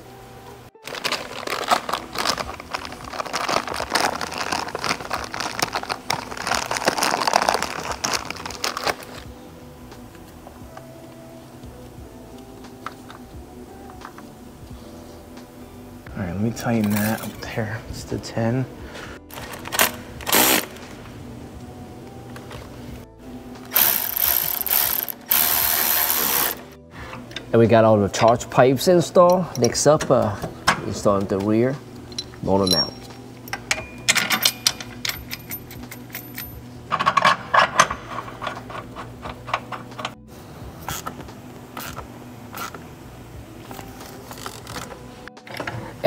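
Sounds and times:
plastic bag crinkling: 0.8 - 9.2
ratchet wrench clicking: 23.7 - 26.7.

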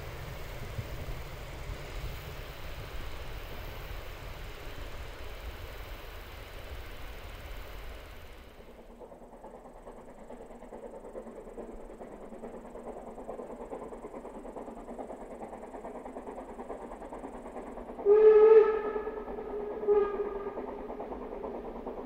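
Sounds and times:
train running noise: 0.0 - 22.0
steam locomotive whistle: 18.0 - 20.6.

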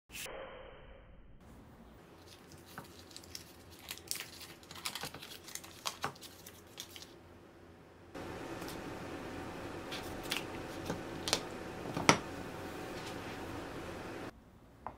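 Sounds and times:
paper wrapper crinkling: 2.2 - 7.2, 9.9 - 12.1.

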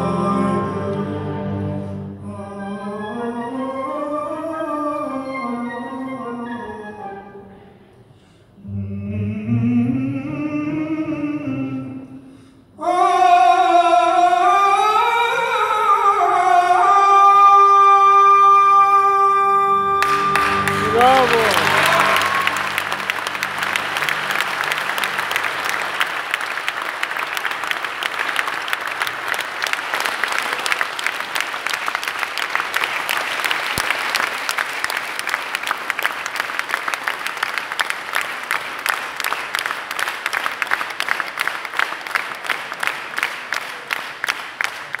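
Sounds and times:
orchestra held notes: 19.4 - 27.0
audience applauding: 20.0 - 45.0.

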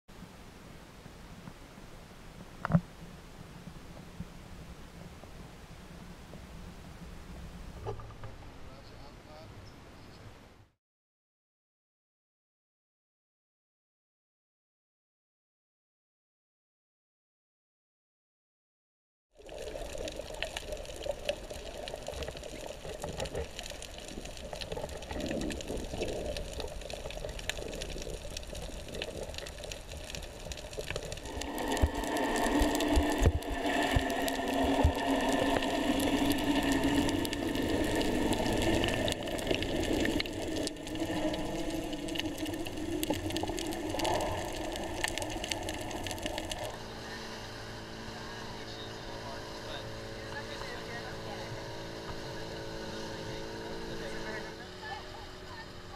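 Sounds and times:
underwater water rushing: 19.4 - 55.6.

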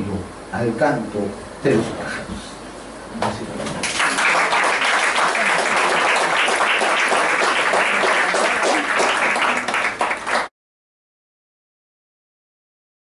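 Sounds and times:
audience applauding: 3.8 - 10.5.

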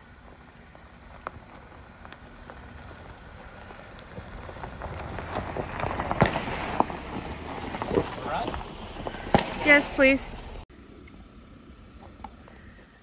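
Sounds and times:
tyres crunching on gravel: 0.0 - 10.6
sharp crack: 5.4 - 10.6.

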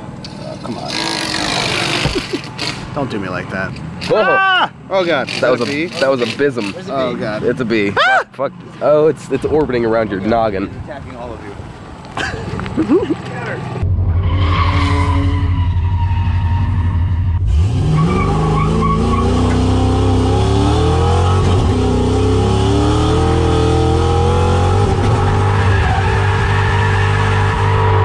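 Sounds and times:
car engine revving: 0.3 - 4.1, 13.6 - 28.0.

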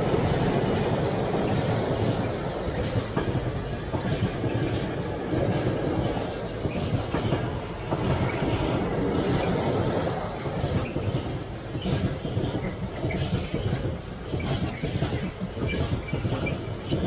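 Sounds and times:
train wheels rumbling on rails: 0.0 - 17.0
wheels clacking over rail joints: 0.0 - 17.0.

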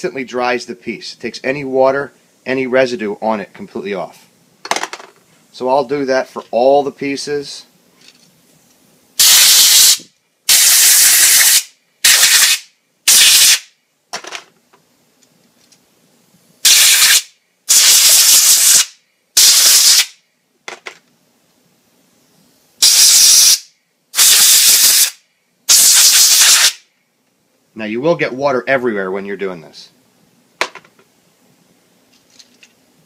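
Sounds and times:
compressed air blow gun hissing: 9.2 - 13.7, 16.6 - 20.1, 22.8 - 26.8.

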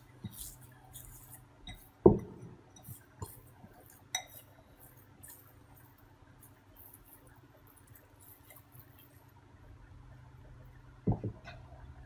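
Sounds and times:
sticky dough rustling: 0.0 - 9.4.

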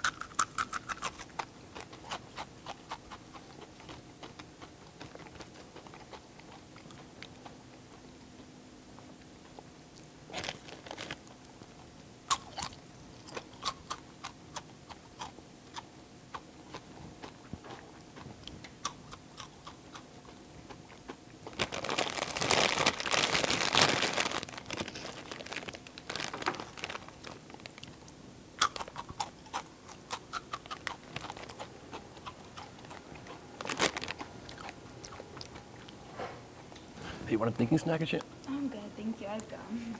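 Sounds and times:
chips crunched and chewed: 0.0 - 7.6, 10.3 - 11.4, 12.3 - 20.1, 21.0 - 36.0
chip bag crinkling: 10.3 - 11.4, 21.4 - 34.8.

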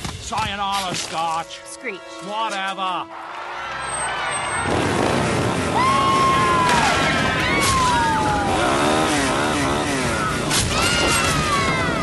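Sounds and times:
motor running hard: 4.7 - 12.0.

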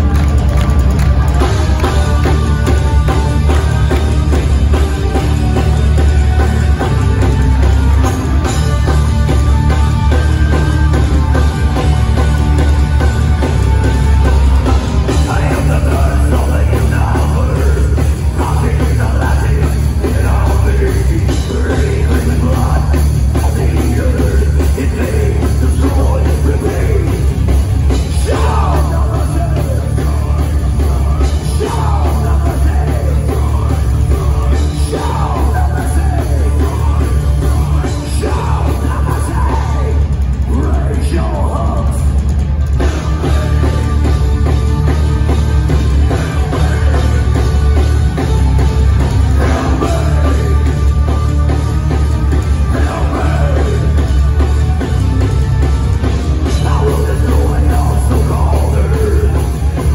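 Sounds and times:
heavy metal band playing live: 0.0 - 59.9
singer's vocals: 15.0 - 42.3, 49.2 - 51.4, 52.2 - 54.5, 56.4 - 59.9.

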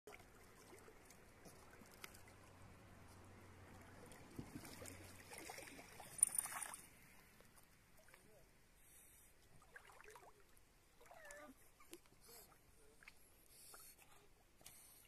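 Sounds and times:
dog splashing in water: 4.1 - 6.8.

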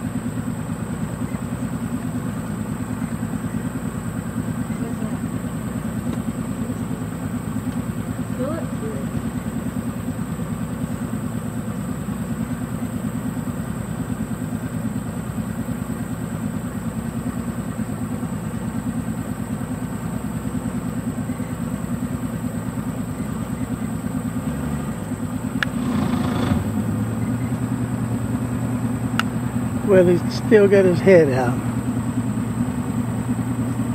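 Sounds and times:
boat motor idling: 0.0 - 33.9.

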